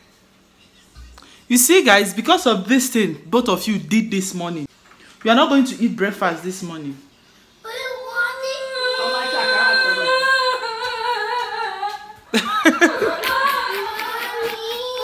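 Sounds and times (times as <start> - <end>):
child wavering cry: 7.7 - 11.2.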